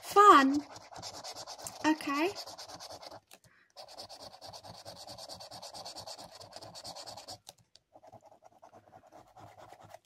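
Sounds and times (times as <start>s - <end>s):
scratchcard being scratched: 0.2s - 7.4s.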